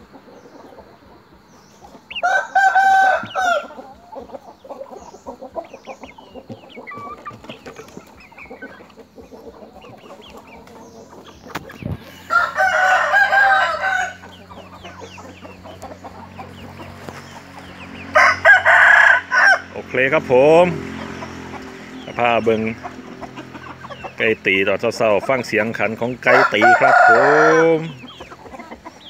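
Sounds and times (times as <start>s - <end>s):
chickens clucking: 0.0s - 29.0s
rooster crowing: 2.2s - 4.0s, 12.0s - 15.1s, 18.0s - 19.8s, 26.2s - 28.0s.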